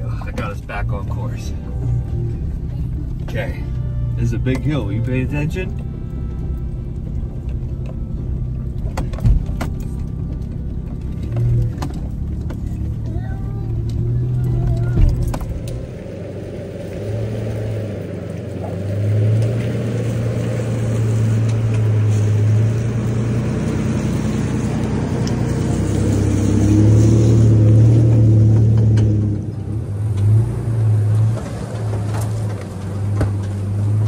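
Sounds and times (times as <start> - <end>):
truck engine at low revs: 0.0 - 34.0
faint knocks from tyres: 31.2 - 33.6.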